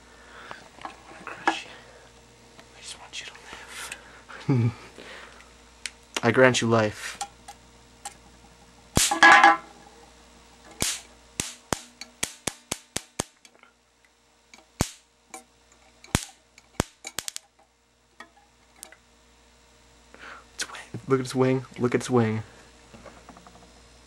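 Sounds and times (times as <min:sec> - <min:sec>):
sharp electric snaps: 0:05.4 - 0:06.4, 0:07.0 - 0:09.2, 0:10.4 - 0:17.7.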